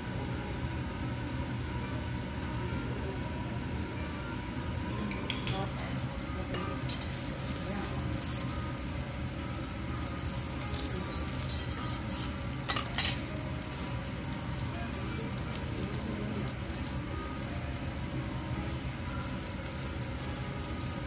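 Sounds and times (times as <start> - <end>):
steady low hum: 0.0 - 21.0
meat sizzling on griddle: 6.0 - 21.0
knife and spatula scraping steel: 11.2 - 13.2.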